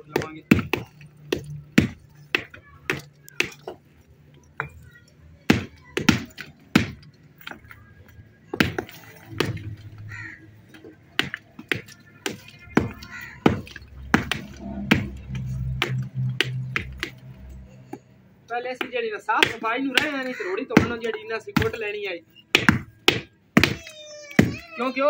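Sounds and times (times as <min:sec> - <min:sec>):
hammers knocking on bricks: 0:00.0 - 0:03.8, 0:05.5 - 0:07.8, 0:08.5 - 0:10.0, 0:10.7 - 0:17.2, 0:18.7 - 0:21.8, 0:22.5 - 0:24.6.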